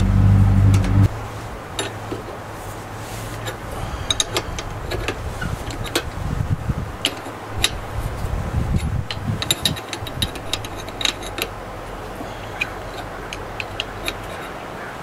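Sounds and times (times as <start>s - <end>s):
low rumble: 0.0s - 1.8s, 3.6s - 11.0s
wrenches clicking on metal nuts: 3.4s - 6.2s, 7.0s - 7.8s, 8.7s - 14.7s.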